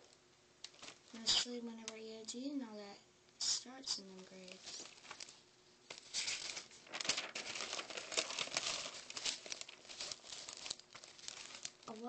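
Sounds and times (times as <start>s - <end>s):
paper cards shuffling: 4.0s - 12.0s.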